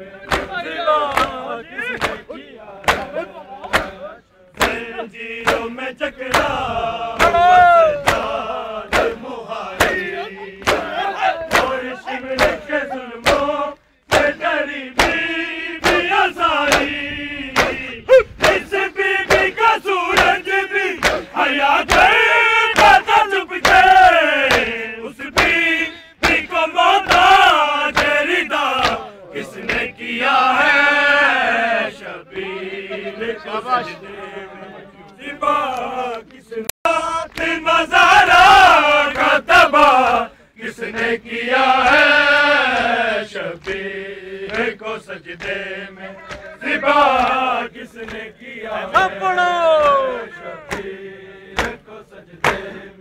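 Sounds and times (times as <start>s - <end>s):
men chanting in unison: 0.0s - 53.0s
hands slapping bare chests: 0.2s - 6.6s, 7.2s - 25.6s, 26.2s - 29.9s, 37.3s - 37.6s, 43.6s - 43.8s, 44.4s - 44.8s, 45.4s - 47.4s, 48.0s - 48.3s, 49.7s - 52.7s.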